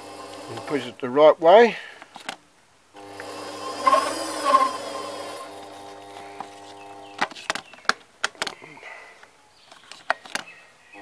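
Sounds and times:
lathe motor humming: 0:00.0 - 0:00.9, 0:03.0 - 0:07.2.

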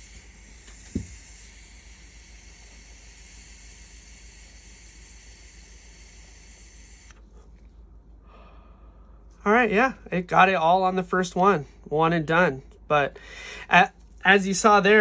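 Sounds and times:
vapor hissing through water pipe: 0:00.0 - 0:07.5.

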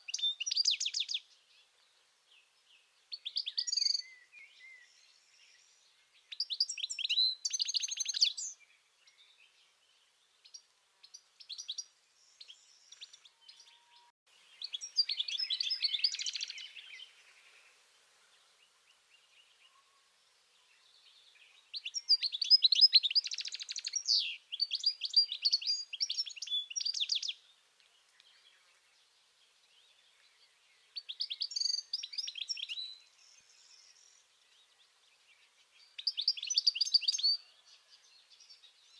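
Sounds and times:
goldfinch twittering song: 0:00.0 - 0:01.7, 0:03.1 - 0:09.6, 0:10.4 - 0:17.8, 0:20.7 - 0:29.0, 0:29.7 - 0:38.9.

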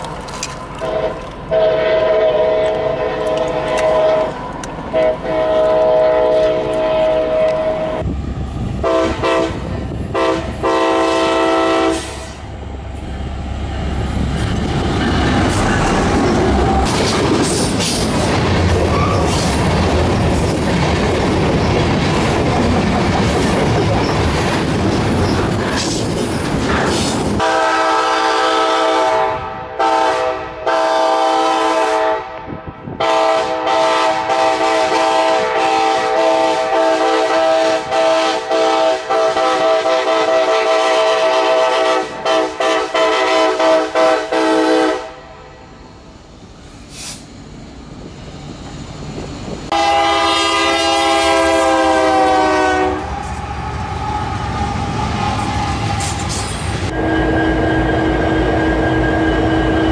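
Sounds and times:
rolling train rumble: 0:00.0 - 0:59.9
locomotive air horns: 0:00.8 - 0:04.3, 0:04.9 - 0:08.0, 0:08.8 - 0:12.5, 0:27.4 - 0:32.4, 0:33.0 - 0:45.6, 0:49.7 - 0:59.9.

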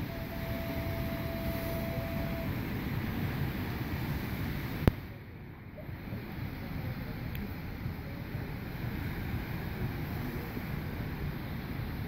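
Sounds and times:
thin steady tone: 0:00.0 - 0:12.0
small waves breaking on sand: 0:06.0 - 0:12.0.

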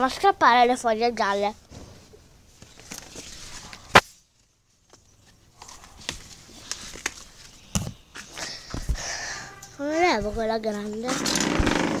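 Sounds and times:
plant leaves rustling: 0:01.5 - 0:07.6.

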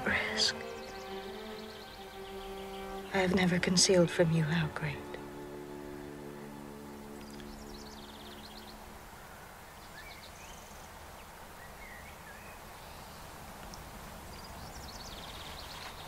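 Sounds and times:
low held musical chord: 0:00.0 - 0:09.8
birds chirping and trilling: 0:00.0 - 0:16.0
low background hiss: 0:00.0 - 0:16.0.

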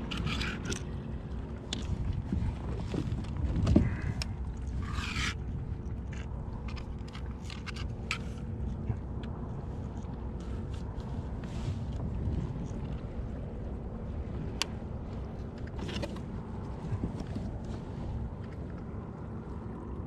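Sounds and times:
steady low rumble: 0:00.0 - 0:20.0
scrapes and knocks on kayak hull: 0:01.7 - 0:04.2, 0:15.4 - 0:18.6.

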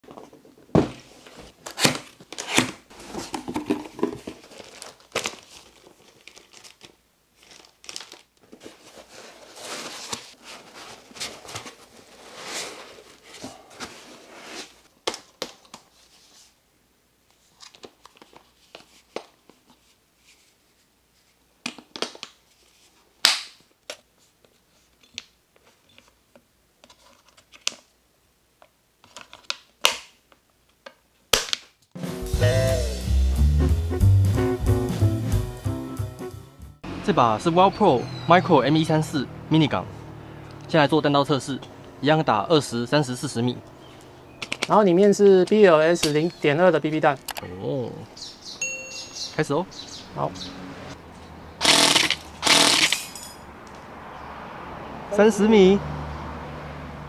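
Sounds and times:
packaging rustling and crinkling: 0:00.9 - 0:16.5
plastic parts clicking and knocking: 0:44.4 - 0:44.8.

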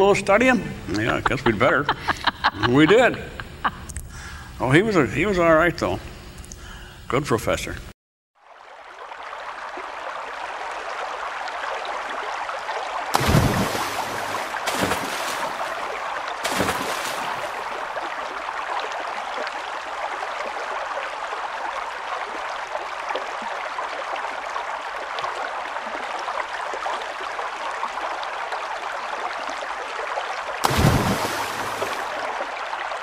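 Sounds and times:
running water rushing: 0:08.4 - 0:33.0.

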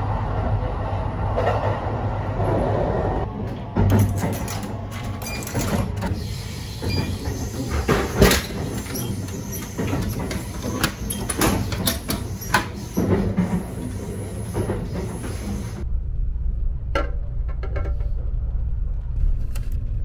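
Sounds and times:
train carriage rumble: 0:00.0 - 0:20.0
vending machine knocks and clicks: 0:03.7 - 0:06.1.

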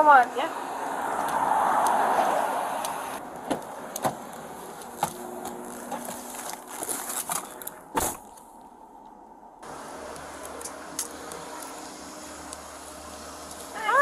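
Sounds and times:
car door shutting: 0:03.4 - 0:04.2.

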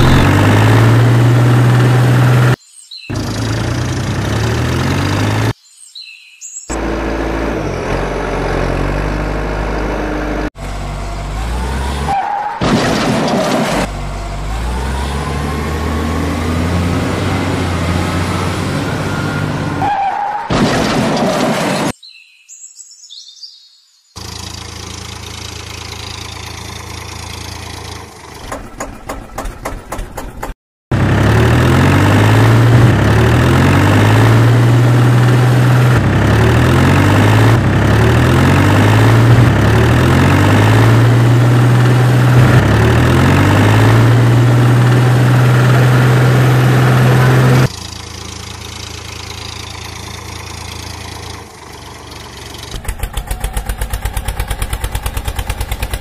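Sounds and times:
engine whine rising in pitch: 0:00.0 - 0:05.6, 0:30.9 - 0:50.8
heavy vehicle engine idling and revving: 0:00.0 - 0:05.6, 0:06.7 - 0:22.0, 0:24.2 - 0:56.0.

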